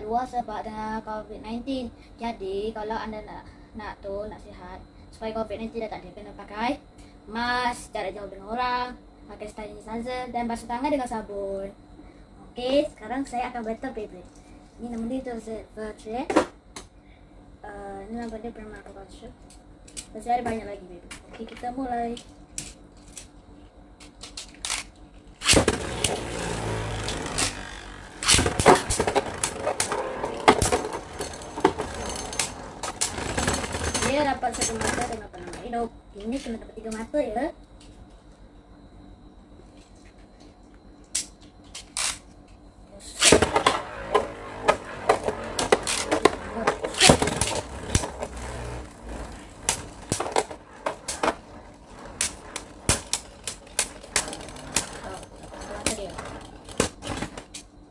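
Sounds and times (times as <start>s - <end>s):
spinning tops whirring: 25.4s - 35.3s, 43.2s - 57.4s
tops clicking and clattering: 25.6s - 35.2s, 43.3s - 57.6s.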